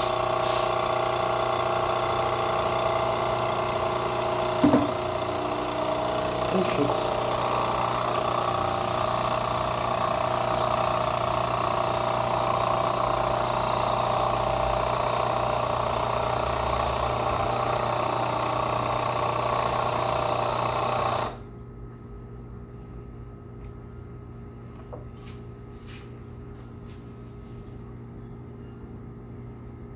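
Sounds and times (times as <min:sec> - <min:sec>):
coffee machine pump buzzing: 0:00.0 - 0:21.7.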